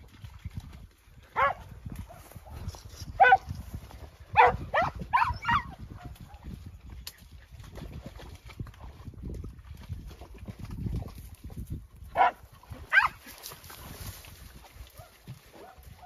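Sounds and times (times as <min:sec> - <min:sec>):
dog barking: 0:01.4 - 0:02.6, 0:03.2 - 0:03.5, 0:04.4 - 0:06.1, 0:12.2 - 0:13.2, 0:15.0 - 0:15.8.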